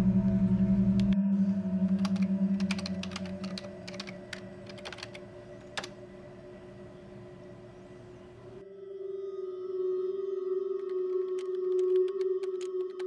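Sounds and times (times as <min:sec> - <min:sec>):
low horror music drone: 0:00.0 - 0:13.0
keyboard typing: 0:01.9 - 0:06.0, 0:10.8 - 0:13.0.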